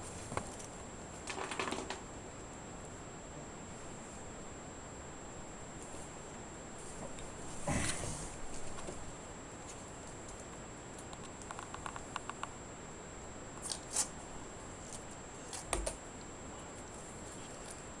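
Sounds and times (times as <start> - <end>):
small clicks: 11.0 - 12.6.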